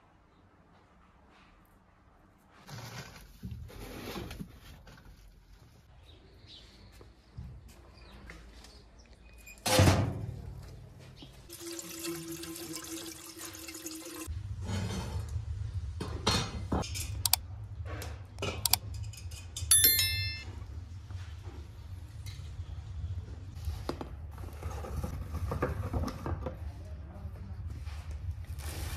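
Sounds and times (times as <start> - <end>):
hose water pouring into metal pot: 11.5 - 14.3
metal cookware clinking: 18.9 - 20.5
ringing metallic clang: 19.7 - 20.6.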